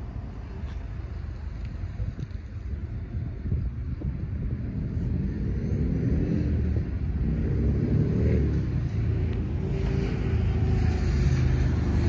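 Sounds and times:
street traffic rumble: 0.0s - 12.0s
vehicle passing: 4.7s - 12.0s.

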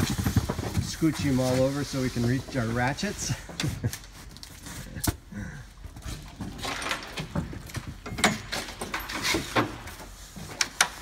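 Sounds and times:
cardboard boxes scraping and knocking: 0.0s - 5.0s.

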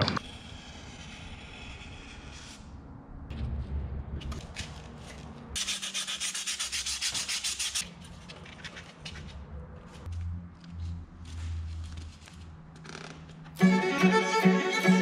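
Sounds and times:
sanding foam block: 5.6s - 7.8s.

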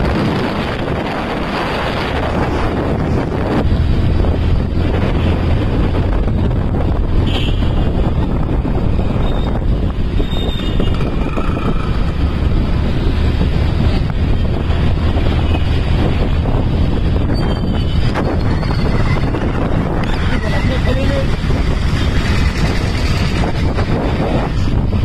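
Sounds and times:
engine and traffic noise: 0.0s - 25.0s
wind buffeting microphone: 0.0s - 25.0s.

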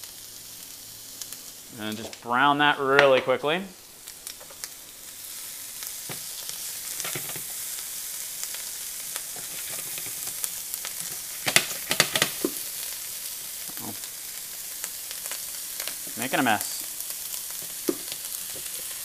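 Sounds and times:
meat sizzling in a frying pan: 0.0s - 19.0s
spatula scraping a pan: 6.9s - 7.6s, 9.3s - 10.4s.

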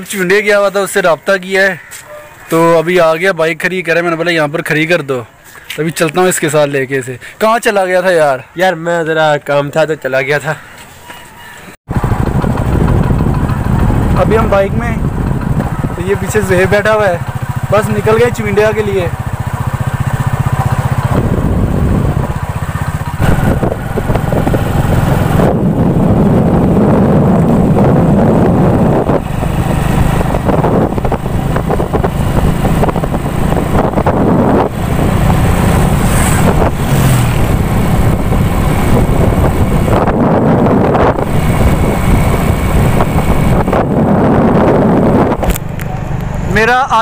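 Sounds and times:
road noise: 0.0s - 47.0s
motorcycle engine running: 11.9s - 47.0s.

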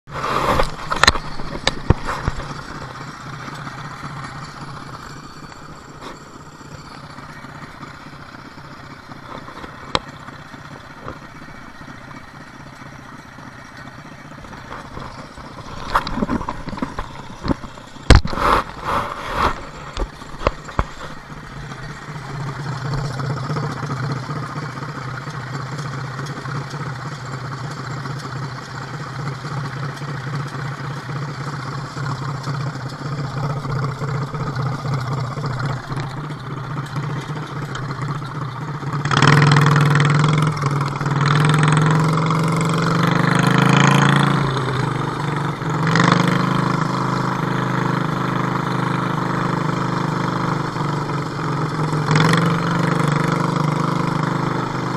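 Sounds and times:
tractor engine idling: 0.1s - 54.9s
sharp knocks and clatters: 0.3s - 7.4s, 13.6s - 27.2s.

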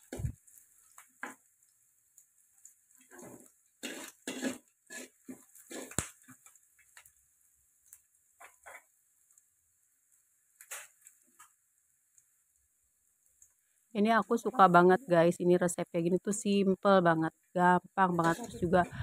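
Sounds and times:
food sauteing: 0.0s - 19.0s
metal spatula scraping a wok: 3.0s - 6.0s, 8.4s - 8.9s.

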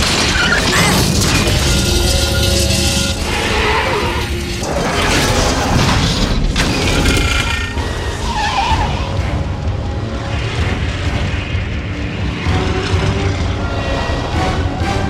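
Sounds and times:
metal grinding and crunching: 0.0s - 14.4s
trucks driving hard: 7.1s - 15.0s.

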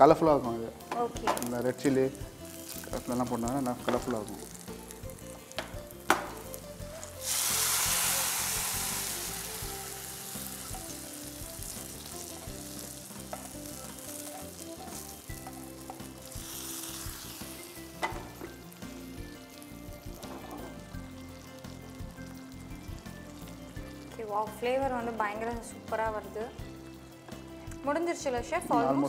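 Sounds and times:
hot oil sizzling: 0.0s - 27.8s
stirring in a frying pan: 2.2s - 23.8s.

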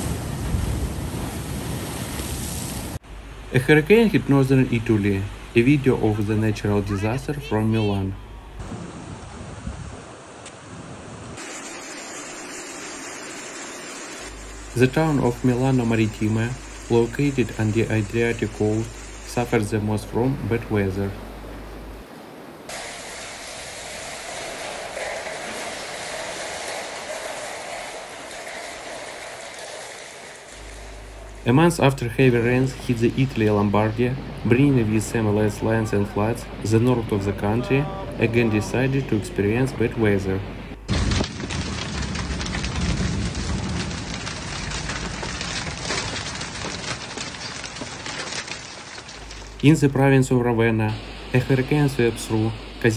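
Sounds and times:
torrential rain with wind: 0.0s - 52.9s
hail rattling on window: 40.9s - 49.6s.

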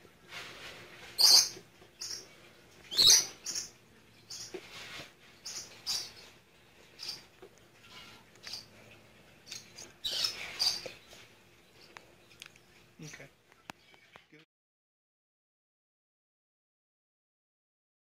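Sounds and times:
small animal chirping: 2.9s - 4.6s, 7.0s - 8.7s, 9.5s - 11.0s.

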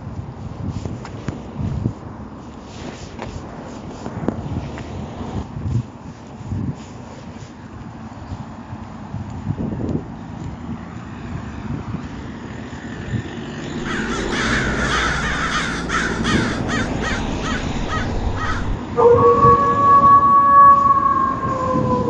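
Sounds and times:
low background rumble: 13.6s - 19.0s
crow cawing: 13.7s - 18.8s
long held tone: 17.4s - 22.0s.

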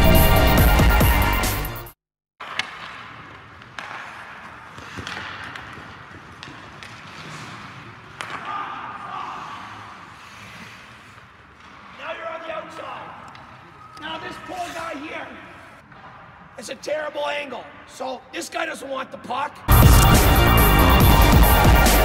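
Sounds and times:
hockey sticks hitting pucks: 2.4s - 15.2s
skates on ice: 2.4s - 17.4s
echoing ice rink ambience: 2.4s - 22.0s
title music: 19.7s - 22.0s.

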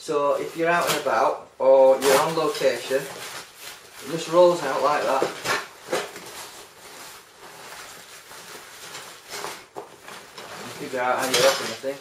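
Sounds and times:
nylon bag rustling: 0.3s - 12.0s.

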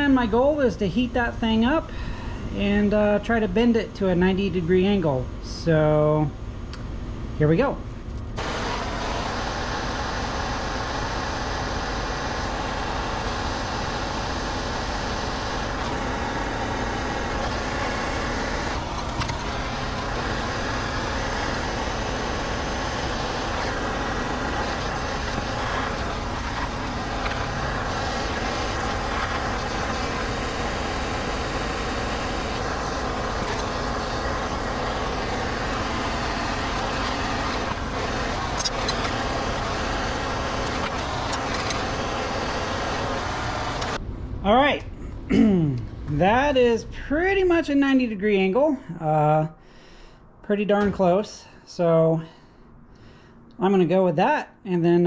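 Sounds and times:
gas torch rushing: 8.4s - 44.0s.

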